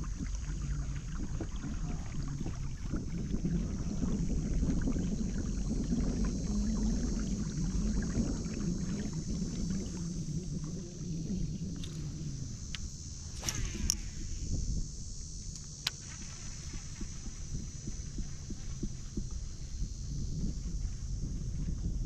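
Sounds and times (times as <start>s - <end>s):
water sloshing against hull: 0.0s - 14.8s, 15.4s - 22.0s
constant high hiss: 0.0s - 22.0s
steady low rumble: 0.0s - 22.0s
faint small ticks: 4.6s - 22.0s.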